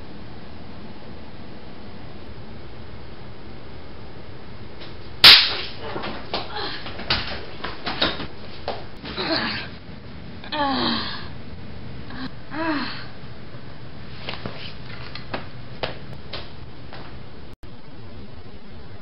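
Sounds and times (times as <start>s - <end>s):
boy groaning and gasping: 6.5s - 6.9s, 9.1s - 9.8s, 10.5s - 11.4s, 12.1s - 13.2s.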